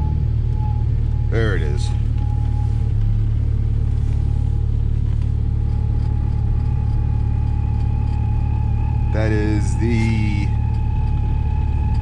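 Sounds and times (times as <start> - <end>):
car engine rumbling: 0.0 - 12.0
steady whine: 0.0 - 12.0.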